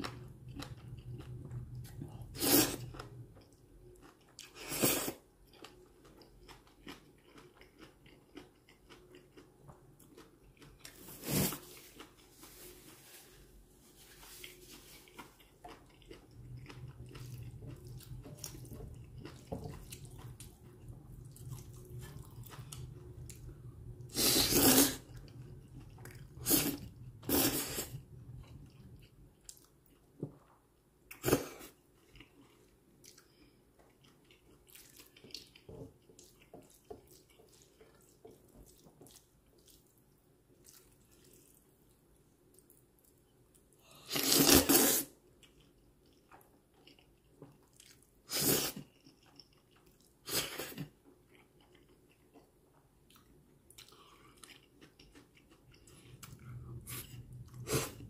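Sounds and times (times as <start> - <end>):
quiet chewing: 0.0 - 44.4, 45.3 - 58.0
noodles slurped: 24.1 - 25.2.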